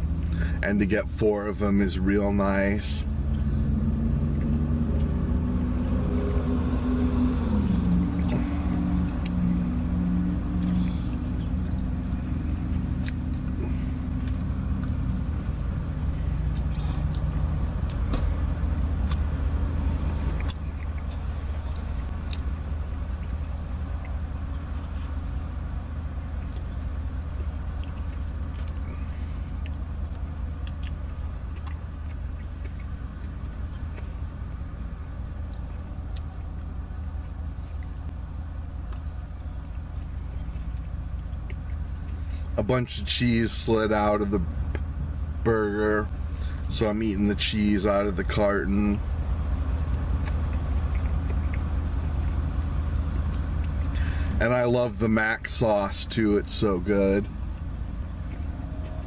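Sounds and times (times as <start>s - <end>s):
car engine idling: 0.0s - 59.0s
chewing clicks: 4.2s - 6.8s, 7.5s - 25.4s, 26.2s - 38.2s, 38.8s - 42.4s, 49.0s - 54.2s.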